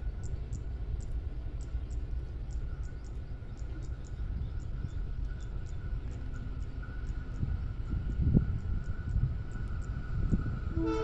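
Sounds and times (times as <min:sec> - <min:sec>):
diesel locomotive rumble: 0:00.0 - 0:11.0
faint high ticks: 0:00.2 - 0:10.4.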